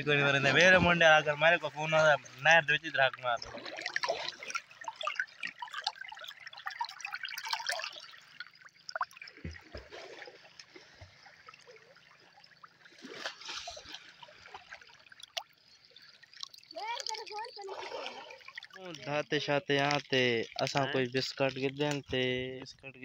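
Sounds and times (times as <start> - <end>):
water drips and gurgles: 0.0 - 23.0
water trickling and lapping: 0.0 - 23.0.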